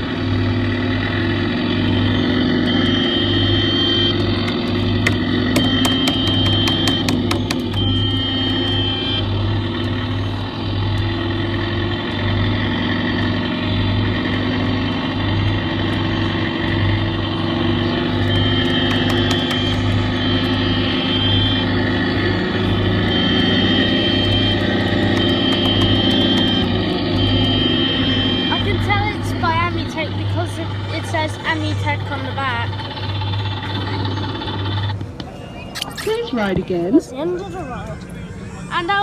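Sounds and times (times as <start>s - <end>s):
kiddie ride mechanical hum: 0.0s - 39.0s.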